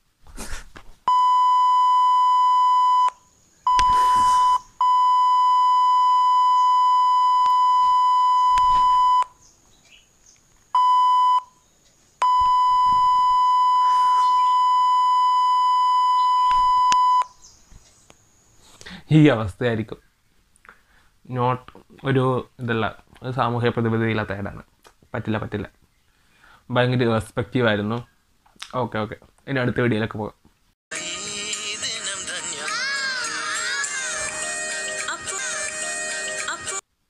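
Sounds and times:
high-pitched censor bleep: 1.1s - 9.4s, 10.8s - 11.6s, 12.2s - 17.4s.

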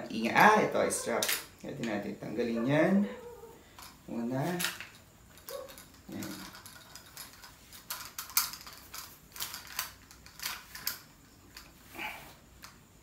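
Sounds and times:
plastic buckles clicking and rattling: 4.6s - 11.8s.

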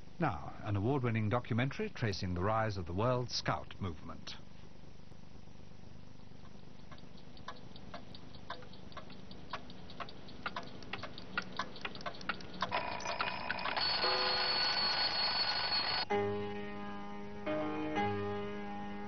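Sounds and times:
clock-like ticking: 6.4s - 14.2s.

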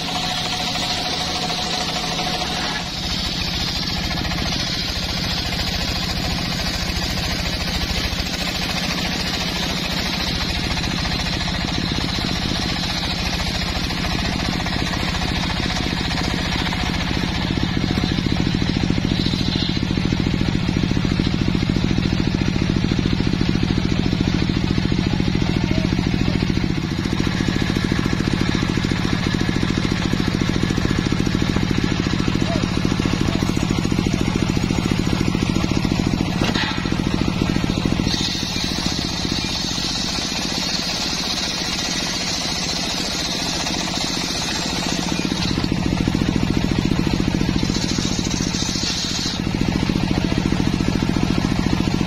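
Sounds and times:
saw blade cutting wood: 0.0s - 20.4s, 32.2s - 52.0s.

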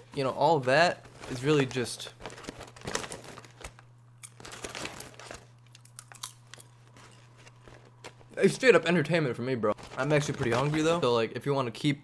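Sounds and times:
man chewing crunchy food: 4.2s - 8.4s.

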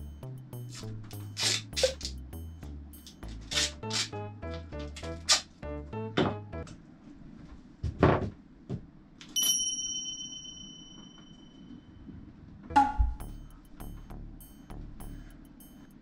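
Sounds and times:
bell-like ding: 9.4s - 11.9s, 12.9s - 16.0s.

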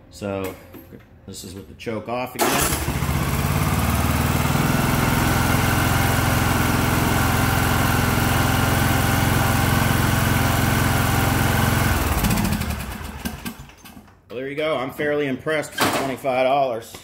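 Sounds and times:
lawn tractor engine running: 2.4s - 13.8s.

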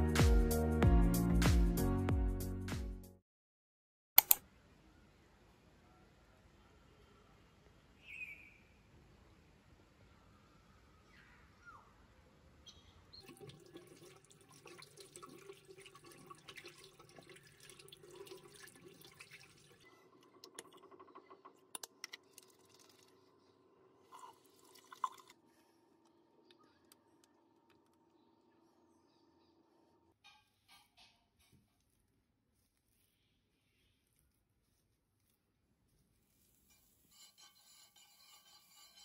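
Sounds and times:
tap water running into sink: 13.2s - 23.1s.

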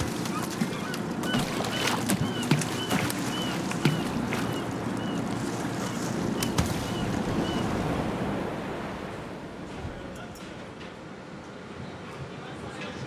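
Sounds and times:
sea wash: 0.0s - 10.2s.

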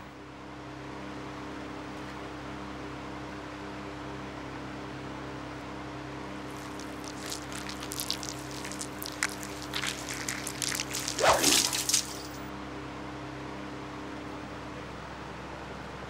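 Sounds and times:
wet splats and spatters: 6.5s - 12.4s.

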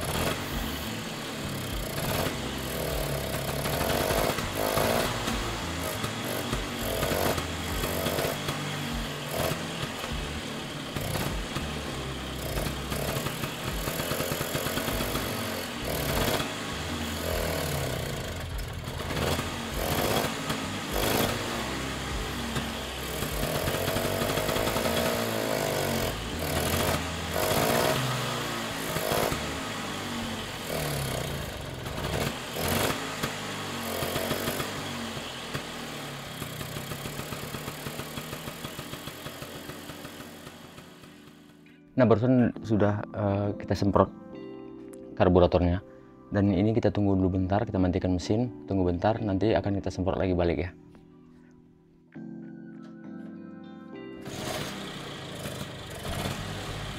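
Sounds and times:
scooter engine running unevenly: 0.0s - 41.6s, 54.2s - 56.9s.

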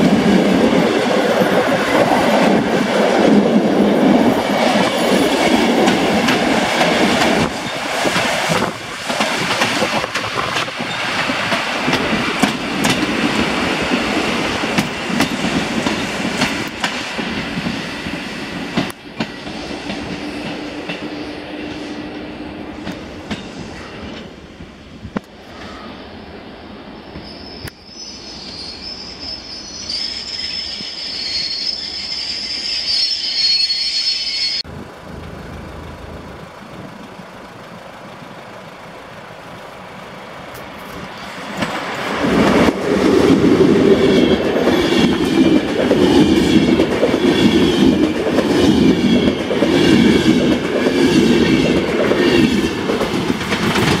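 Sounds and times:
train wheels clattering over joints: 0.0s - 21.1s, 40.6s - 54.0s
passenger train passing at speed: 0.0s - 54.0s
train wheel and brake squeal: 6.9s - 12.1s, 22.9s - 24.3s, 25.4s - 26.2s, 26.9s - 34.7s, 40.6s - 52.7s.

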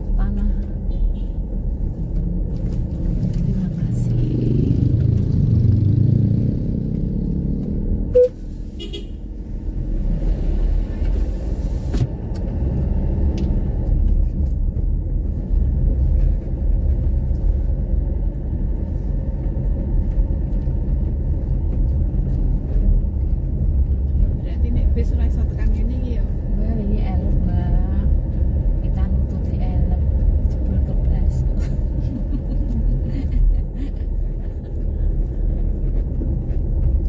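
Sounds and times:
engine and road rumble: 0.0s - 37.0s
loud beep: 8.1s - 8.4s.

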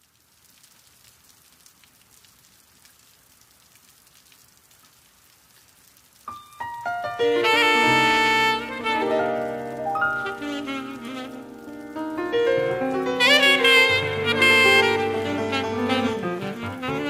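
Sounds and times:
rain patter: 0.0s - 17.0s
instrumental music: 6.3s - 17.0s.

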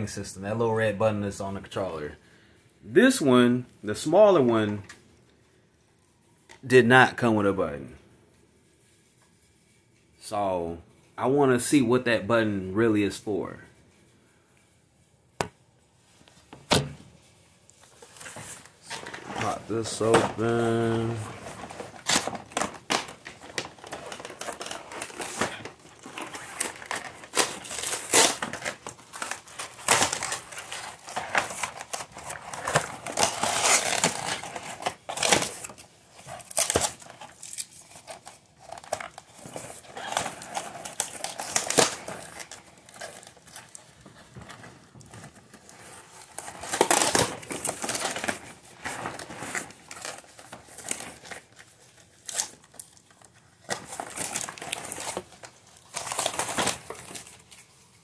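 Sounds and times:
cardboard box rustling and crinkling: 17.9s - 57.7s.

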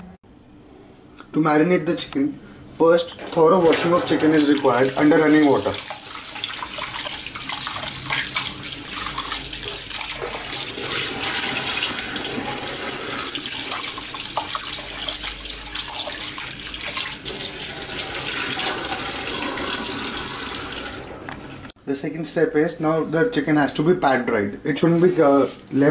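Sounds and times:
tap water splashing: 3.7s - 12.6s, 13.3s - 17.5s.

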